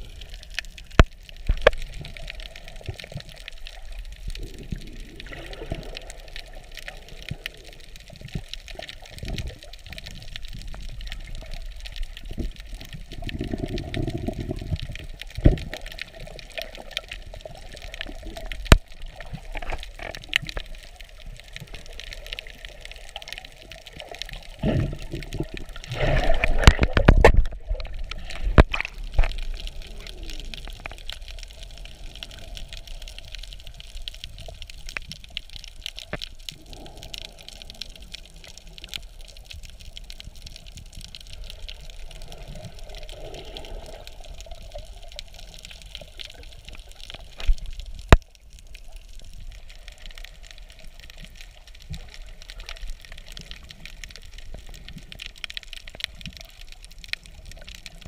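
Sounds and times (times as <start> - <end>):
bubbles and splashing from kicking: 0.0 - 33.1
underwater hiss with crackles: 0.0 - 58.0.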